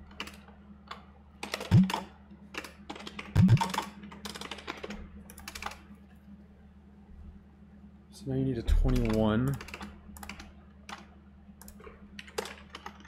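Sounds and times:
keyboard typing: 0:01.5 - 0:02.0, 0:02.6 - 0:05.8, 0:08.9 - 0:13.0.

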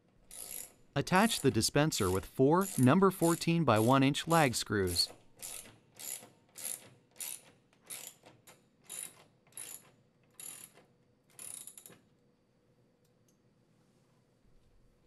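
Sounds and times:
ratchet wrench ratcheting: 0:00.3 - 0:00.8, 0:02.6 - 0:03.9, 0:05.4 - 0:08.2, 0:11.4 - 0:11.9.

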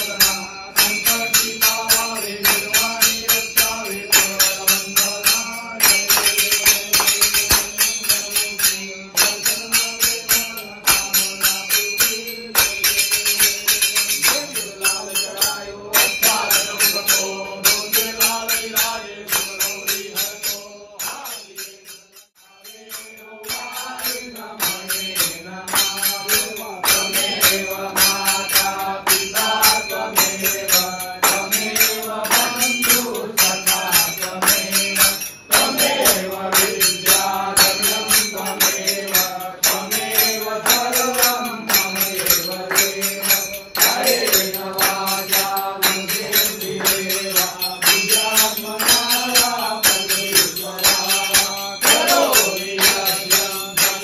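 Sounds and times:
jingling hand percussion: 0:00.0 - 0:54.0
voices singing devotional song: 0:00.0 - 0:54.0.

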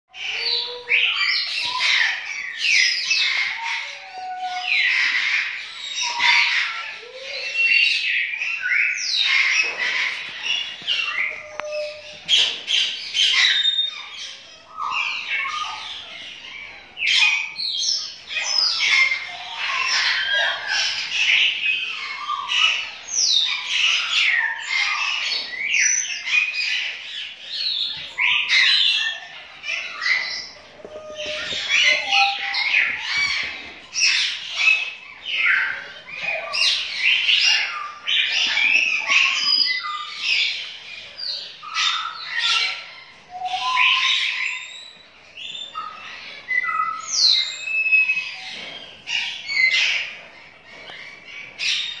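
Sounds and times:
parrot chicks squawking: 0:00.1 - 0:52.0.

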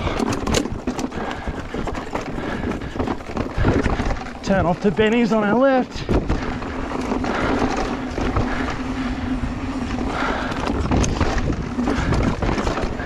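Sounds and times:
tyres clattering on rough dirt: 0:00.0 - 0:13.0.

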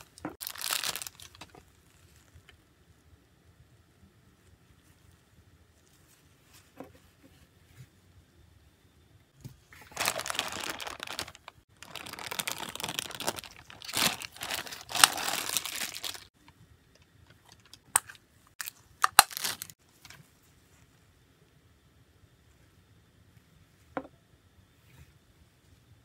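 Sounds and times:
plastic wrapper crinkling and tearing: 0:00.0 - 0:02.4, 0:09.7 - 0:16.4, 0:17.4 - 0:19.8.

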